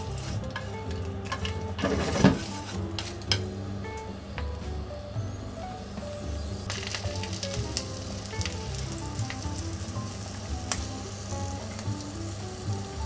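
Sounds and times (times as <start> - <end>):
light background music: 0.0 - 13.0
fish sizzling in a frying pan: 6.2 - 13.0.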